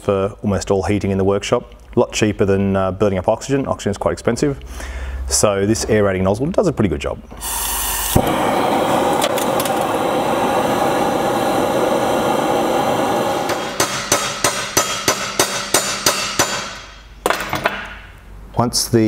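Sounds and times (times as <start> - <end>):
gas torch burning: 7.3 - 17.0
hammer blows on metal pin: 13.4 - 17.1.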